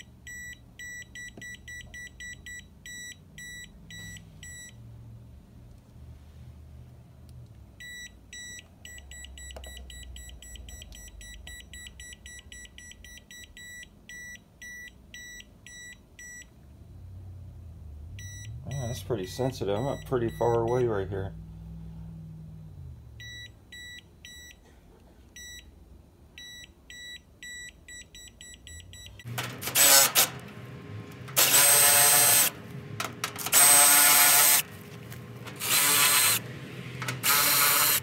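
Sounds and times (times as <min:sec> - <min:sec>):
short high-pitched beeps: 0:00.0 - 0:04.8.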